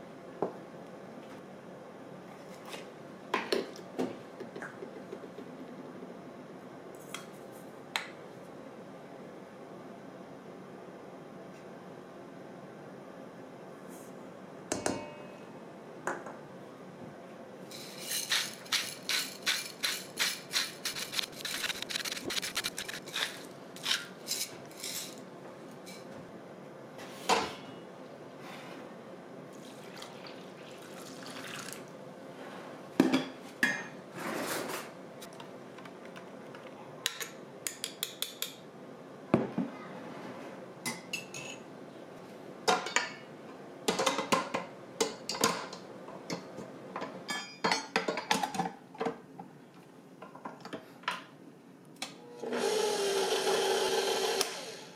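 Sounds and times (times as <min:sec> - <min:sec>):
utensils clinking against dishes: 0:17.7 - 0:25.2, 0:40.9 - 0:41.6, 0:42.7 - 0:43.3, 0:47.3 - 0:48.8.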